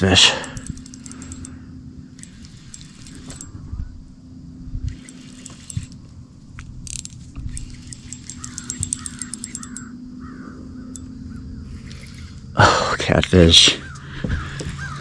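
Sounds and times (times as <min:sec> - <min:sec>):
low hum: 0:00.0 - 0:15.0
fishing reel clicking: 0:00.2 - 0:03.6, 0:04.8 - 0:12.6.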